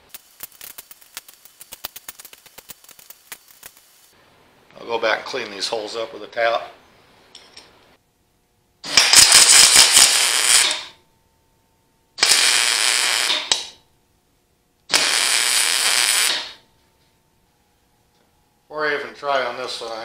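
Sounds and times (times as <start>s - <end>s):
welder arc crackling: 0.0s - 5.7s, 8.8s - 11.0s, 12.2s - 13.8s, 14.9s - 16.6s.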